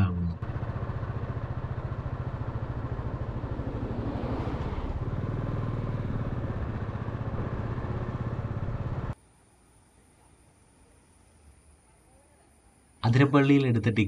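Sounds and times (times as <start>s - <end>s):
vehicle engine running steadily: 0.0s - 9.2s.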